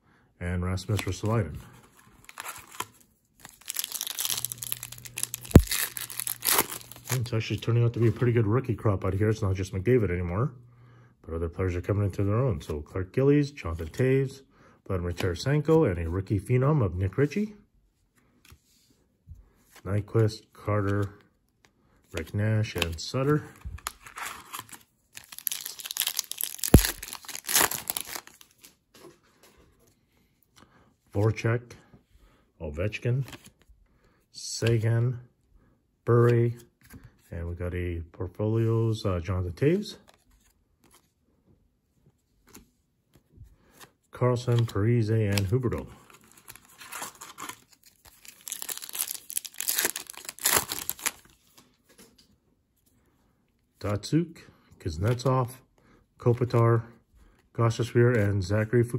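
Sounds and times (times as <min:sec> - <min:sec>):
foil wrapper tearing and crinkling: 0:02.3 - 0:07.3, 0:24.0 - 0:28.5, 0:46.2 - 0:51.4.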